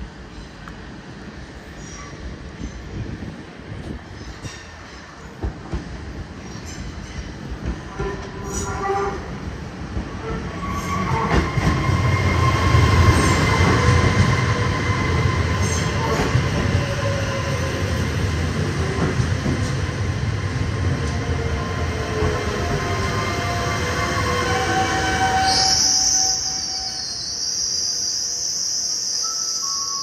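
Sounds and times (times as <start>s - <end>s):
train rumbling into station: 0.0s - 30.0s
high steady brake squeal: 24.4s - 30.0s.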